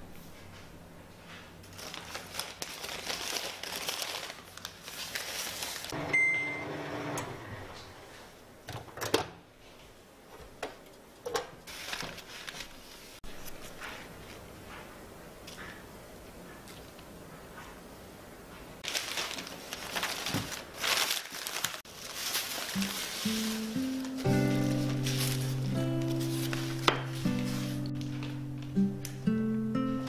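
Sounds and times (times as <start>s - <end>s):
newspaper crinkling: 1.6s - 6.0s, 11.7s - 14.4s, 18.8s - 28.8s
microwave electronic beep: 6.0s - 7.3s.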